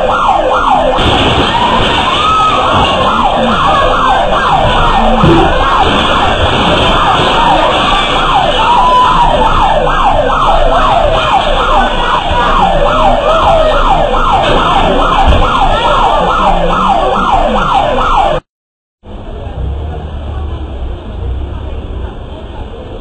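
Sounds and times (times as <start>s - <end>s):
electronic alarm siren yelping: 0.0s - 18.4s.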